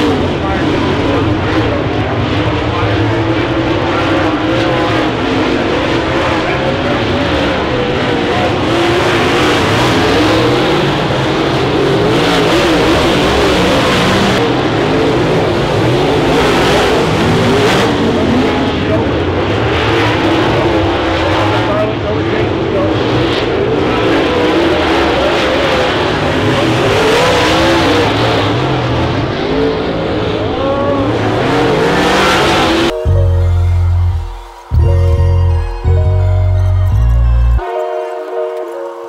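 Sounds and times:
race car engines: 0.0 - 39.0.

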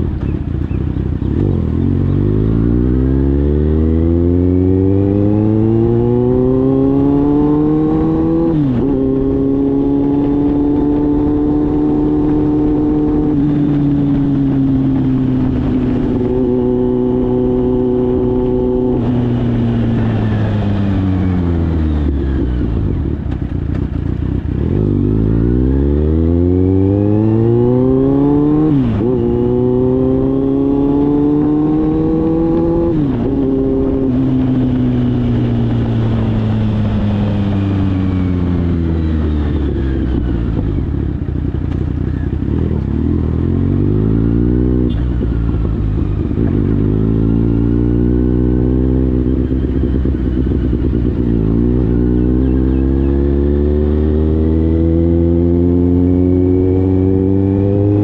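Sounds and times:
motorcycle engine accelerating: 0.0 - 58.0.

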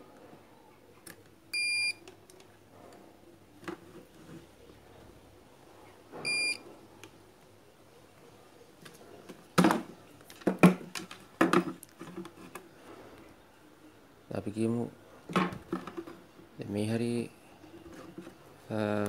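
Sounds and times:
multimeter beep: 1.5 - 2.0, 6.2 - 6.6.

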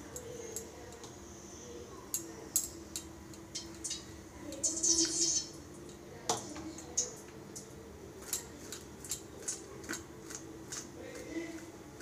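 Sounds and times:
grating food on metal grater: 8.2 - 12.0.

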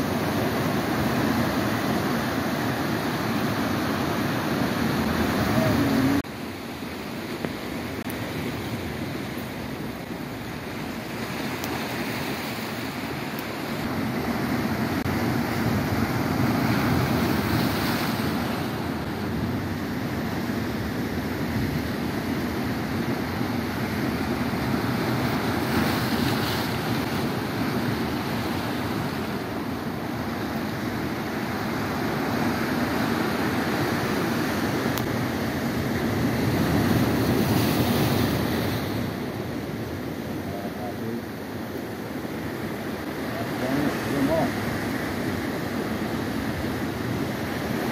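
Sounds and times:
surf washing over rocks: 0.0 - 47.9.

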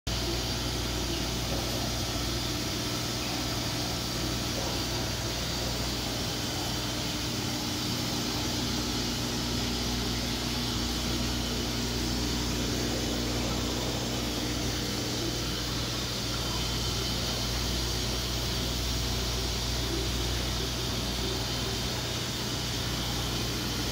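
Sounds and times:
aeration hissing: 0.1 - 23.9
aquarium filter pump humming: 0.1 - 23.9.

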